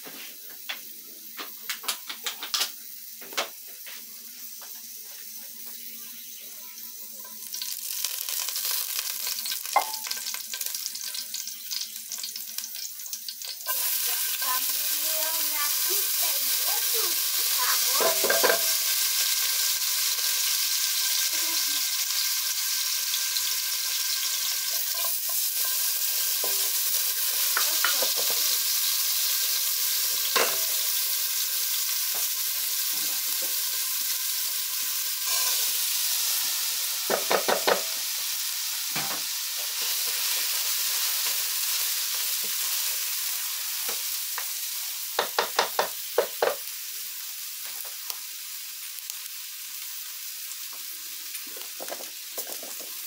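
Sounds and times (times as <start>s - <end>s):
oil sizzling in a pot: 0.0s - 53.0s
rice being poured: 7.4s - 19.2s.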